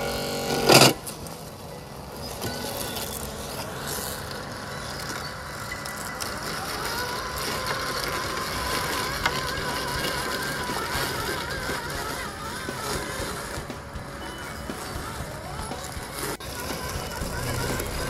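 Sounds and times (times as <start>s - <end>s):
robot lawnmower motor whine: 0.0s - 18.0s
steady rustling noise: 0.0s - 18.0s.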